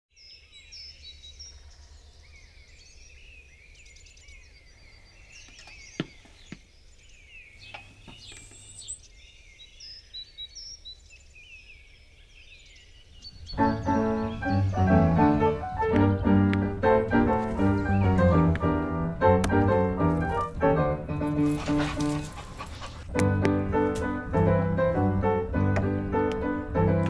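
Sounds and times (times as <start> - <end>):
small birds chirping: 0.1 - 26.9
steady low rumble: 13.4 - 27.0.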